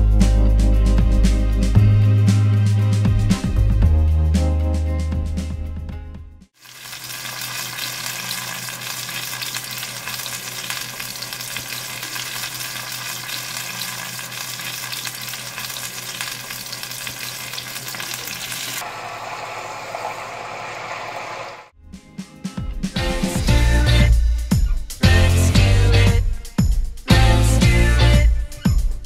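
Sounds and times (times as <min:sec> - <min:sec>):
vegetables sizzling in oil: 0:06.6 - 0:21.6.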